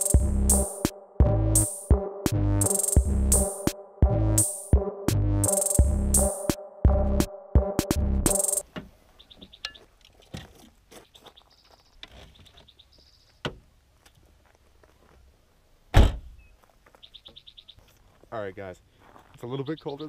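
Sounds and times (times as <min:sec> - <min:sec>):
footsteps on gravel: 0:09.3 - 0:13.1, 0:14.0 - 0:15.3, 0:17.8 - 0:20.0
car trunk lid slamming: 0:15.9 - 0:16.3.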